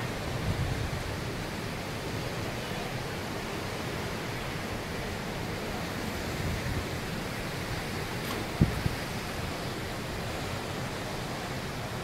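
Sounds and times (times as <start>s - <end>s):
wind rumble on microphone: 0.0s - 2.2s, 5.6s - 11.0s
rushing water: 0.0s - 12.0s.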